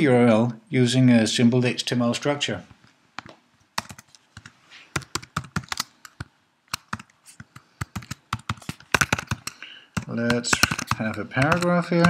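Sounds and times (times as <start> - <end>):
computer keyboard typing: 3.8 - 12.0.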